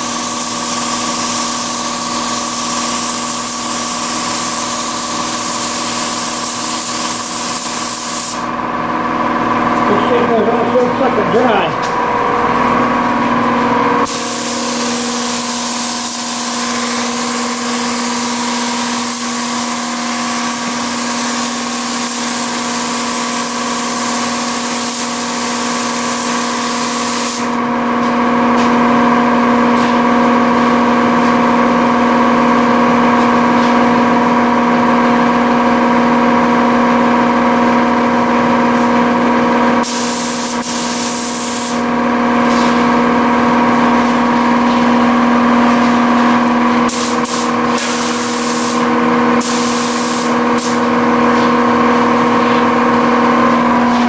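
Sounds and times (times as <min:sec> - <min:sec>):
paint spray gun hissing: 0:00.0 - 0:08.5, 0:14.0 - 0:27.6, 0:39.8 - 0:41.8, 0:46.9 - 0:50.9
machine hum: 0:00.0 - 0:21.7, 0:25.3 - 0:54.0.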